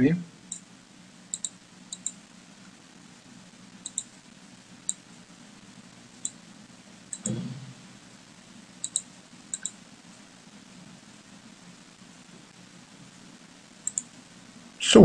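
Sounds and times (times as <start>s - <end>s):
faint low hum: 0.0s - 15.0s
mouse buttons clicking: 1.3s - 2.2s, 3.9s - 4.1s, 7.1s - 7.4s, 8.8s - 9.8s, 13.9s - 14.1s.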